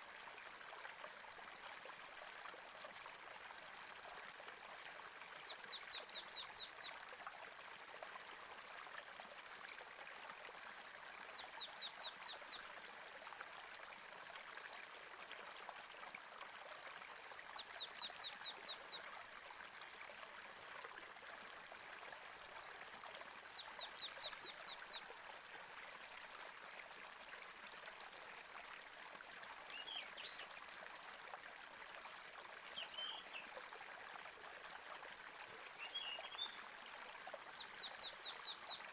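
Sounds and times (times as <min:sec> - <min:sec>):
stream running water: 0:00.0 - 0:38.9.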